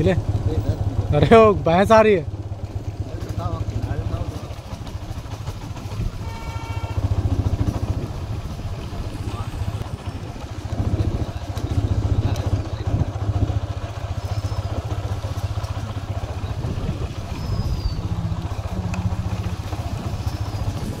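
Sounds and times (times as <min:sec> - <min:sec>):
small engine running: 0:00.0 - 0:21.0
faint bird chirps: 0:14.2 - 0:14.9, 0:17.2 - 0:18.2.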